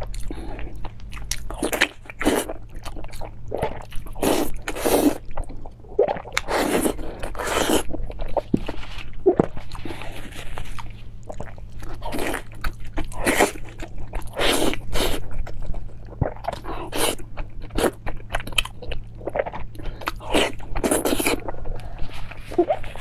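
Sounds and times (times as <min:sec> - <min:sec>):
wet chewing and biting: 0:00.0 - 0:23.0.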